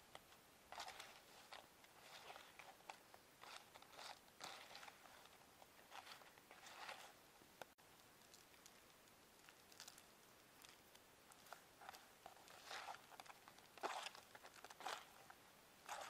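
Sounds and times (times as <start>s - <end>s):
leaf rustling and crinkling: 8.1s - 16.0s.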